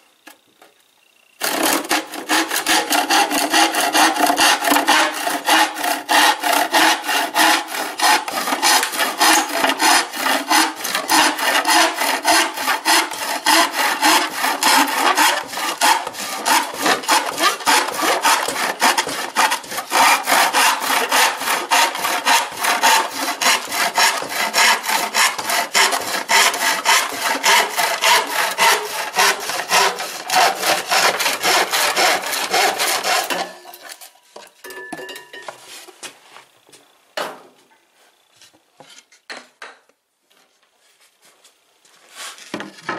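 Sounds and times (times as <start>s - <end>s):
handsaw cutting wood: 1.4s - 33.6s.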